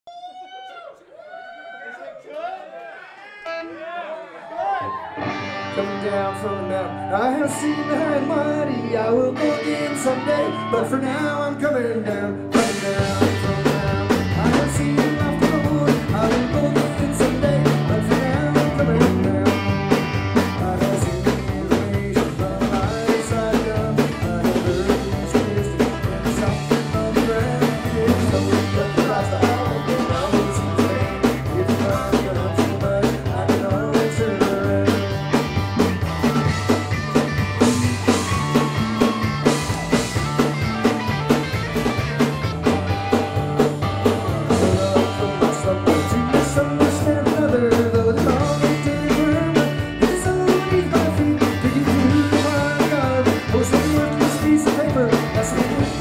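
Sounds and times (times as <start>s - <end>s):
electric guitar: 4.8s - 56.0s
steady drum beats: 12.5s - 56.0s
stepping bass line: 12.5s - 56.0s.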